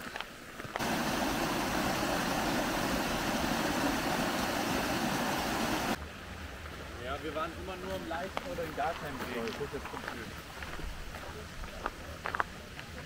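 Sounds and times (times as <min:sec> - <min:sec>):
stream splashing over rocks: 0:00.6 - 0:06.0.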